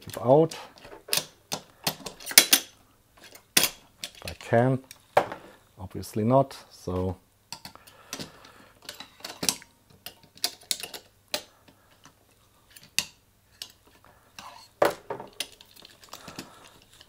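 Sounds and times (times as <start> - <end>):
knife clicking and scraping on metal: 12.8 - 13.8.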